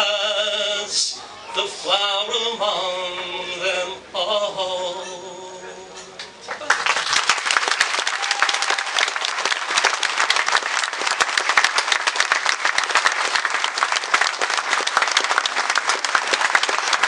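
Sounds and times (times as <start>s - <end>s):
crowd applauding: 6.4s - 17.0s.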